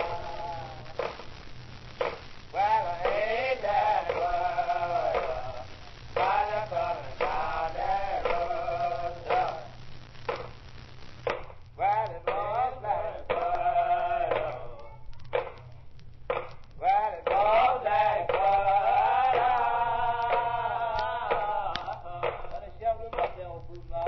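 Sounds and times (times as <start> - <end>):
man singing: 0.0 - 1.1, 2.5 - 9.8, 11.8 - 15.0, 16.8 - 24.0
sharp percussive hits: 2.0 - 2.4, 11.2 - 11.6, 14.3 - 17.5.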